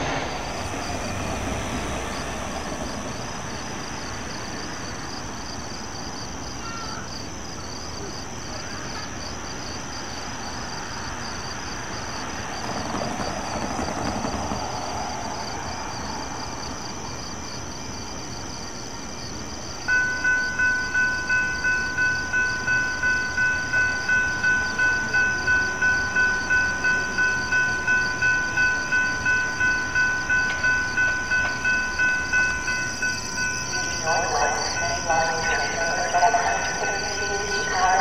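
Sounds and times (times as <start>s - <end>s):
crossing warning bell ringing: 19.8s - 38.0s.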